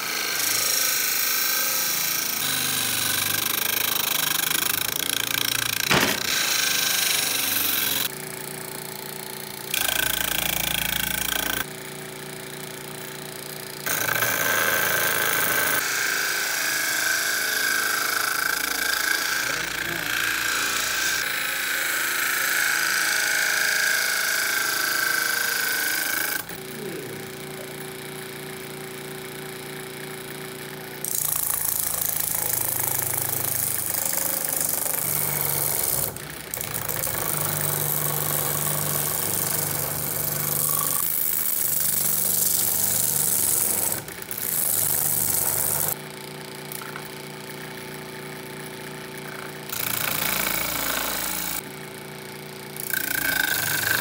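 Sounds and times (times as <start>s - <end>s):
electric motor humming: 0.0s - 11.7s, 12.4s - 30.2s, 52.8s - 54.0s.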